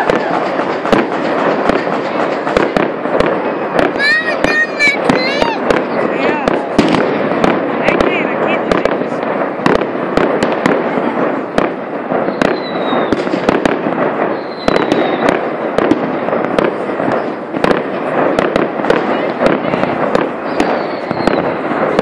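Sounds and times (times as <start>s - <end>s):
firework crackling: 0.0s - 22.0s
firework shells bursting: 0.0s - 22.0s
falling firework whistles: 10.4s - 22.0s.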